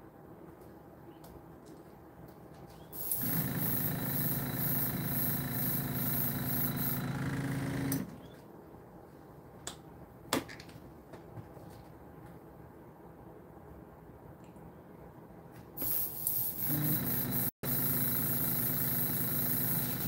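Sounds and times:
air hissing through airbrush: 3.0 - 7.1, 15.8 - 20.0
airbrush compressor running: 3.0 - 8.2, 15.8 - 20.0.

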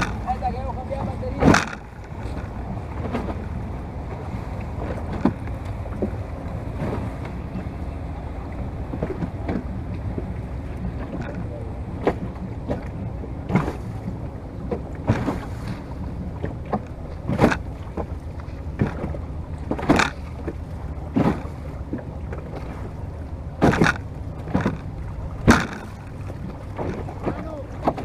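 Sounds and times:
sharp splashes: 0.0 - 0.6, 14.7 - 28.0
water slapping against wooden hull: 0.0 - 28.0
wind rumble: 0.0 - 28.0.

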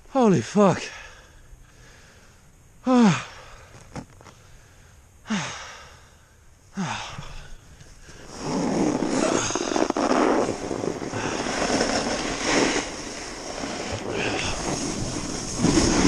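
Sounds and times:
snowboard scraping over snow: 8.0 - 16.0
wind on microphone: 8.2 - 16.0.

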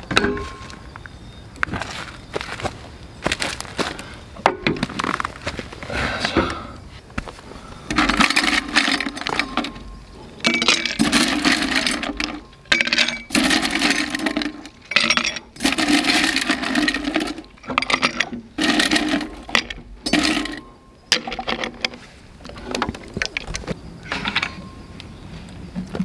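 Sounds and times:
ice rattling in metal jug: 7.9 - 9.8, 10.5 - 20.6
ice cubes clinking into glass mug: 10.5 - 20.6.

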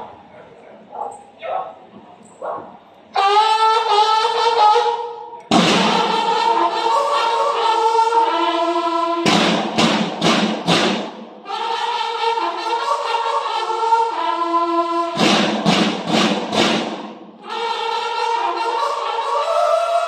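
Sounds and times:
bugles playing held notes: 3.1 - 20.0
loud drum strokes: 5.5 - 6.7, 8.2 - 12.0, 15.0 - 17.7.

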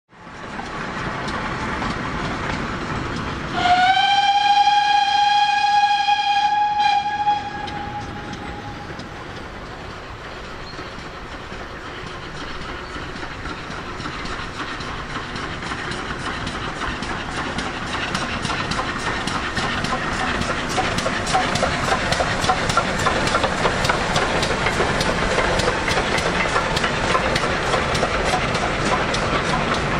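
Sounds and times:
steam locomotive chuffing: 0.2 - 29.9
steam whistle: 3.5 - 8.9.

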